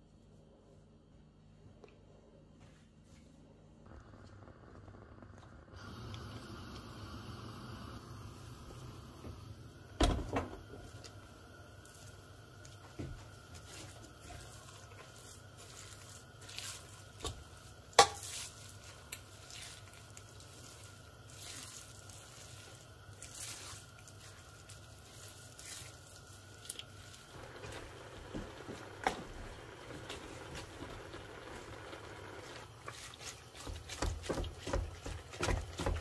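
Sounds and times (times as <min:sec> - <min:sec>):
mince squishing and scraping: 0:11.8 - 0:30.9, 0:32.5 - 0:36.0.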